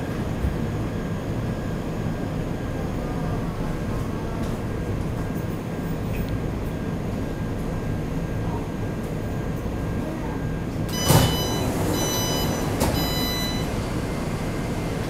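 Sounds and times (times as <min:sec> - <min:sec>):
stopped train humming: 0:10.6 - 0:15.0
door warning tone beeping: 0:10.9 - 0:14.9
train doors sliding open: 0:10.9 - 0:15.0.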